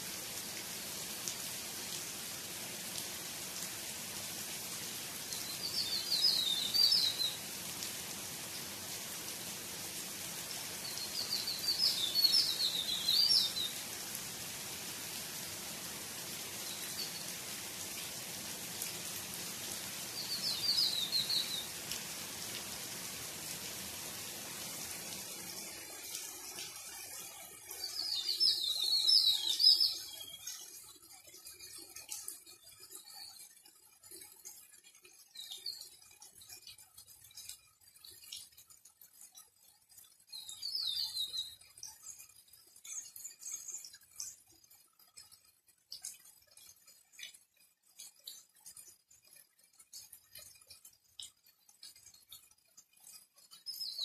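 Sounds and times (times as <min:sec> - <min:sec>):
rain on foliage: 0:00.0 - 0:30.2
songbird singing: 0:05.3 - 0:07.6, 0:10.7 - 0:13.9, 0:16.5 - 0:17.5, 0:20.1 - 0:21.8, 0:27.8 - 0:30.4, 0:40.3 - 0:41.6, 0:53.6 - 0:54.0.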